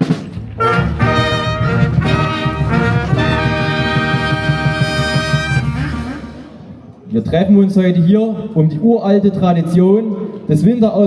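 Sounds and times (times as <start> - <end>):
brass band fanfare: 0.0 - 6.8.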